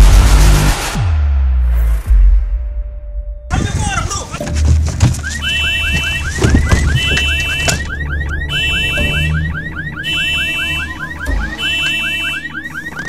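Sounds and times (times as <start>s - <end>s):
car alarm rising chirps: 3.5s - 13.0s
knocks: 4.4s - 8.0s
two-tone alarm beep: 5.0s - 13.0s.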